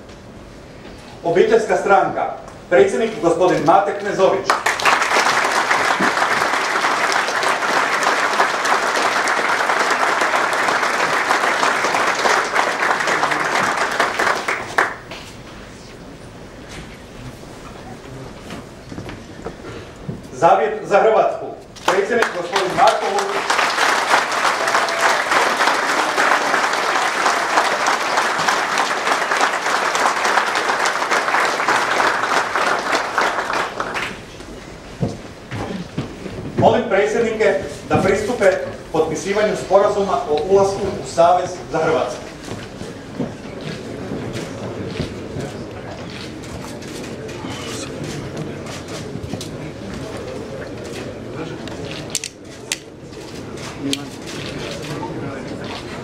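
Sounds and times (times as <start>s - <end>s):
audience applauding: 4.4s - 15.3s, 21.9s - 34.4s.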